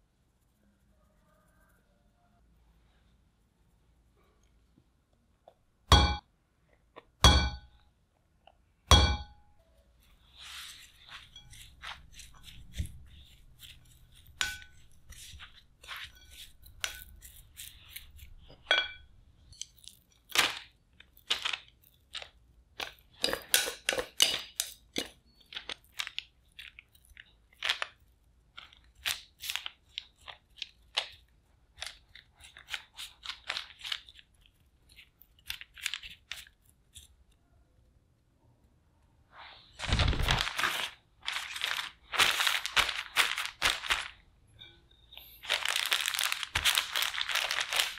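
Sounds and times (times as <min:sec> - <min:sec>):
parchment paper crackling: 0:09.8 - 0:18.6, 0:19.5 - 0:37.4, 0:39.7 - 0:44.2, 0:45.4 - 0:47.9
chopsticks tapping and scraping: 0:10.0 - 0:37.4.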